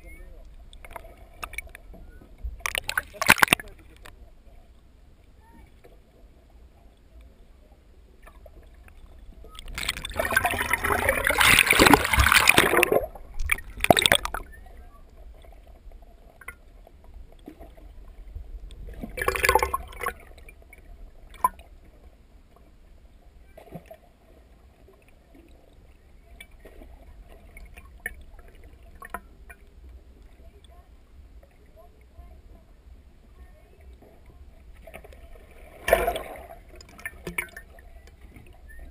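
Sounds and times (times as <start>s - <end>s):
muffled underwater sloshing: 0.0s - 38.9s
splashing and bubbling: 0.7s - 4.2s, 8.2s - 21.8s, 34.6s - 38.9s.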